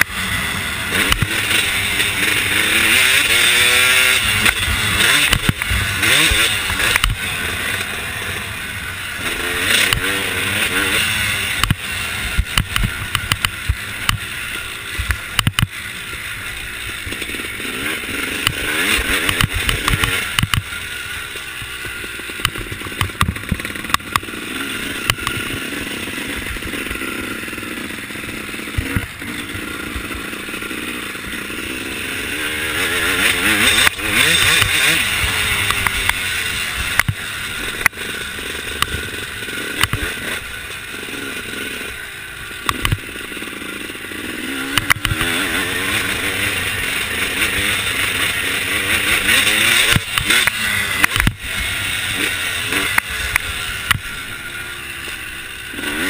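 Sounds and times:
dirt bike engine revving: 0.0 - 56.0.

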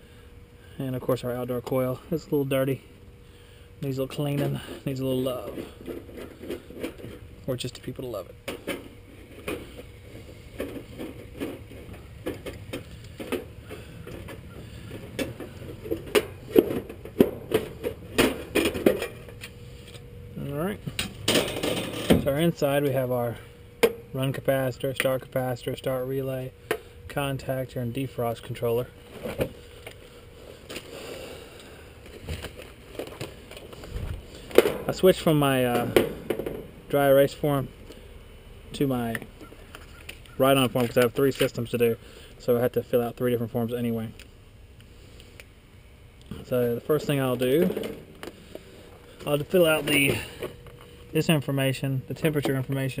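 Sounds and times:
rustling and scraping on metal: 4.0 - 20.2, 20.9 - 23.6, 28.6 - 36.7, 46.9 - 51.1.

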